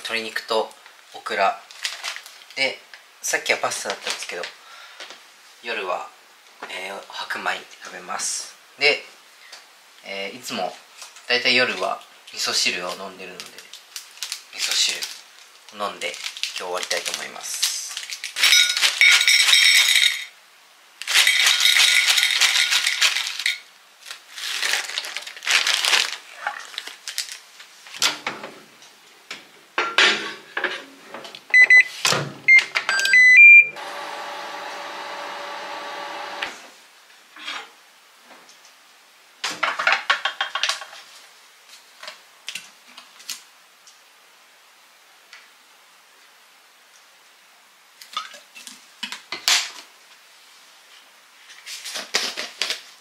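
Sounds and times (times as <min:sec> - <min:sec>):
plastic bag crinkling: 0:01.7 - 0:02.6, 0:12.9 - 0:20.1, 0:21.0 - 0:28.0
microwave keypad beeping: 0:31.6 - 0:31.9, 0:32.5 - 0:33.8
microwave oven humming: 0:32.9 - 0:36.6.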